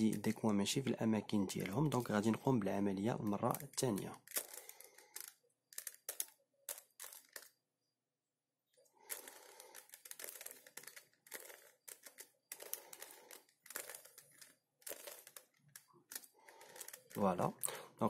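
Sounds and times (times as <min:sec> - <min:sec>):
puzzle cube clicking: 0:01.5 - 0:07.6, 0:09.1 - 0:17.7.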